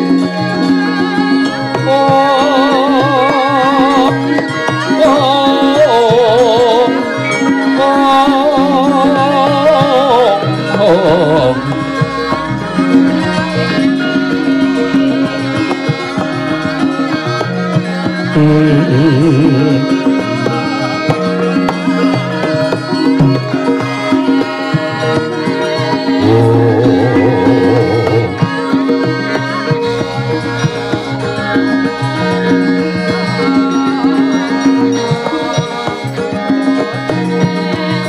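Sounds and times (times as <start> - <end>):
woman singing: 0.6 - 14.0, 26.1 - 29.3
hand drum strokes: 26.0 - 29.1
ringing metallophone tones: 26.1 - 29.0.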